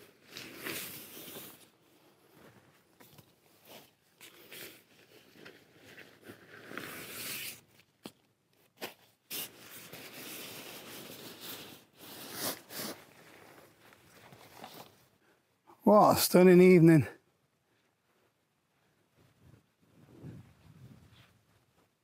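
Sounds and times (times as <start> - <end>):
fabric rustling and scraping: 0.0 - 7.7, 8.6 - 15.2.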